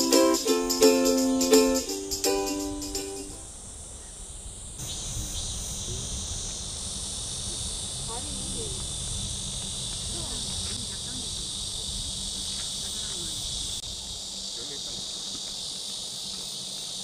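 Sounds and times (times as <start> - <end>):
plucked-string music: 0.0 - 3.4
insects chorus: 0.0 - 17.0.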